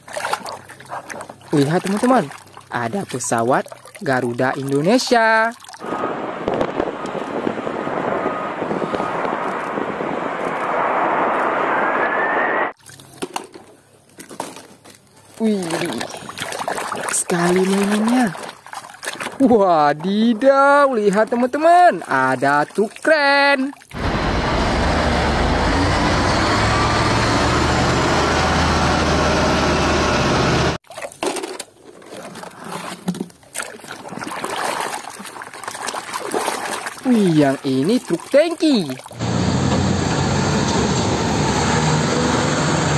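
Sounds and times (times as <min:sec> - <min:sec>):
water trickling: 0:00.0 - 0:05.9, 0:15.4 - 0:24.0, 0:33.6 - 0:39.2
rising engine whine: 0:05.9 - 0:12.8, 0:24.0 - 0:30.8, 0:39.2 - 0:42.9
jet engines roaring: 0:24.0 - 0:30.8.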